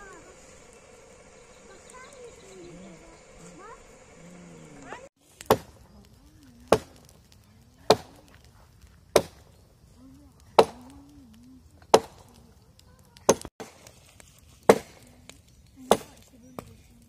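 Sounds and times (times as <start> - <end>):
axe chopping into log: 5.4 - 5.8, 9.1 - 9.4, 10.6 - 10.8, 11.9 - 12.2, 14.7 - 15.0.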